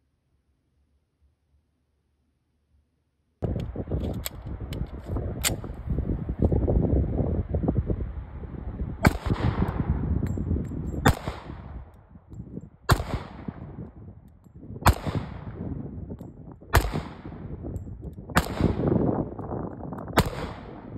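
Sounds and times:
low rumbling noise: 3.4 - 20.9
pistol shots with echo: 9.0 - 9.8, 11.0 - 11.8, 12.9 - 13.8, 14.8 - 15.6, 16.7 - 17.5, 18.4 - 19.1, 20.1 - 20.9.

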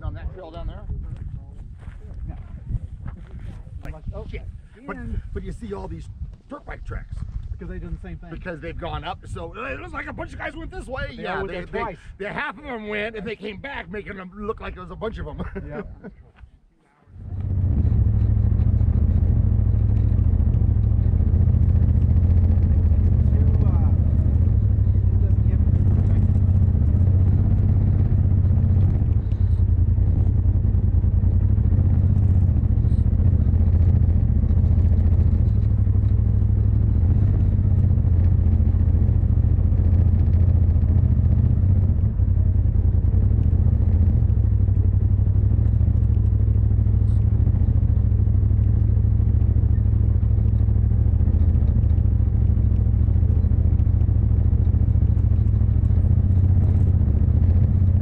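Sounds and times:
vehicle engine droning: 17.1 - 58.0.

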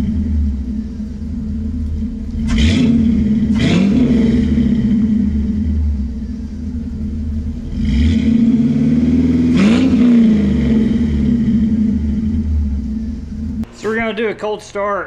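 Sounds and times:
deep engine idle: 0.0 - 15.0.

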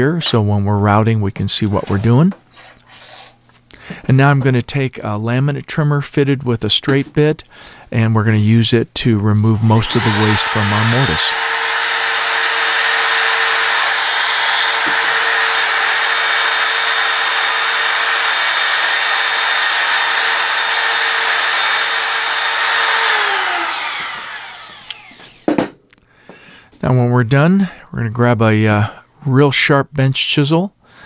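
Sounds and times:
router whining: 9.4 - 25.7.

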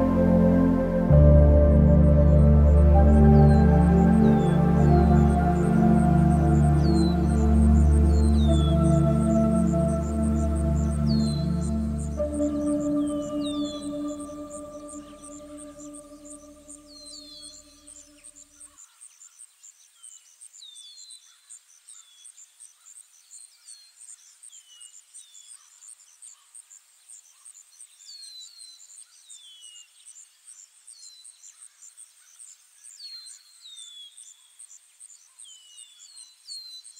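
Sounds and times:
sustained music chord: 0.0 - 18.0
crickets chirping: 0.0 - 23.3.

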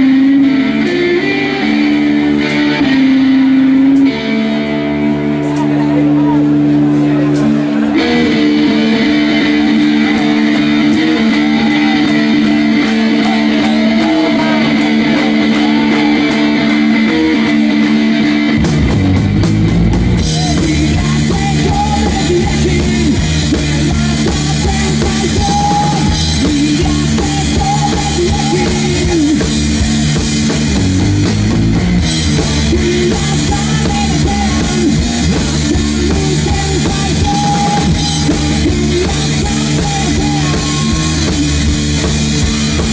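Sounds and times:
electric guitar chords: 0.0 - 42.9
drum kit with cymbals: 18.6 - 42.9.

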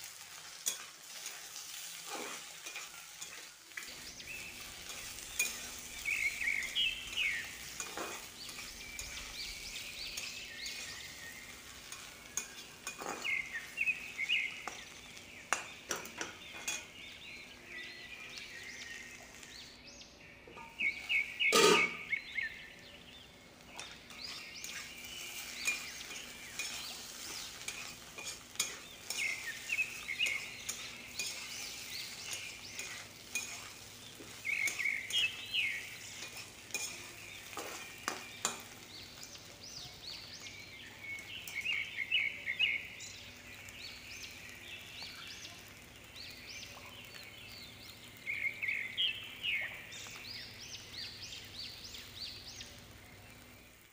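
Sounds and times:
frying sizzle: 0.0 - 53.9
metal spatula scraping pan: 0.3 - 13.8, 20.5 - 22.2, 23.7 - 38.8
loud metal clank: 21.5 - 22.1.

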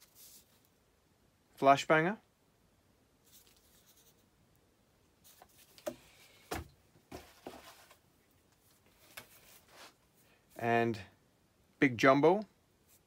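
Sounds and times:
bubble wrap and cardboard rustling: 7.1 - 8.0.

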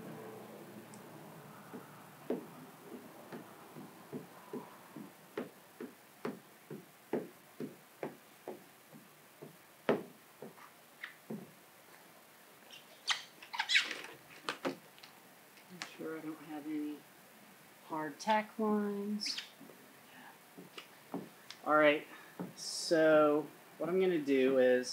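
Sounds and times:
high squeak: 12.7 - 14.0.

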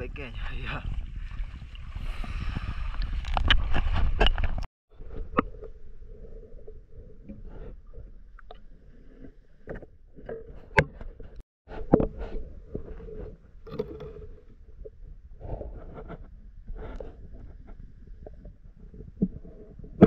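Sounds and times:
underwater knocks and clicks: 3.0 - 5.7, 8.3 - 16.2, 16.8 - 20.0.

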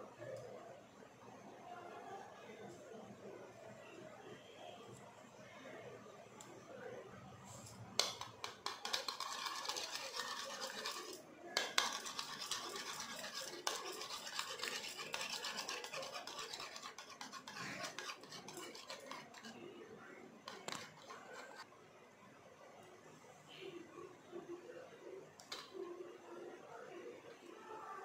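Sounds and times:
metal spoon beating eggs in bowl: 8.0 - 19.7, 20.4 - 21.6.

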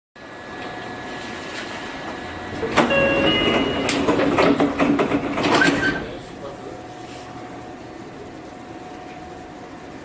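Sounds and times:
train cab hum: 0.6 - 6.9
short electronic beeps: 2.8 - 4.2.

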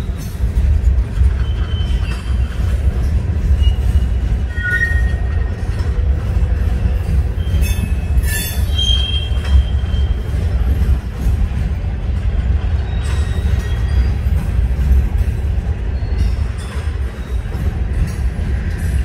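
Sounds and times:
freight train rumbling past: 0.0 - 19.0
high wheel squeals: 1.3 - 2.7, 3.4 - 5.4, 7.2 - 10.4.

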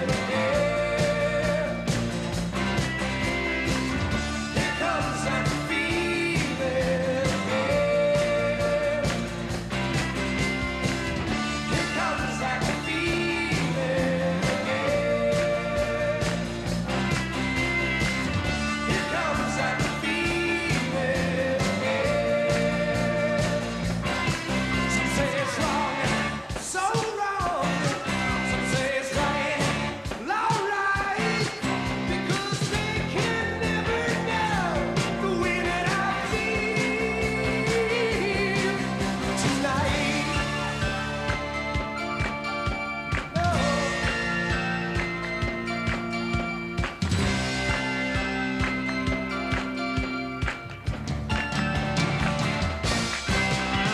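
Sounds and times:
man singing: 0.0 - 1.9, 4.5 - 9.2, 11.6 - 16.4, 18.8 - 23.8, 24.8 - 41.3, 43.3 - 44.5
pop-rock band playing: 0.0 - 53.9.

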